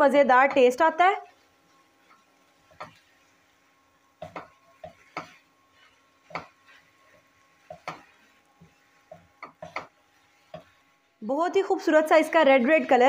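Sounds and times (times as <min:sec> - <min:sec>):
wooden spatula tapping a pan: 0:02.0 - 0:03.0, 0:04.2 - 0:05.4, 0:06.2 - 0:08.2, 0:09.0 - 0:10.8.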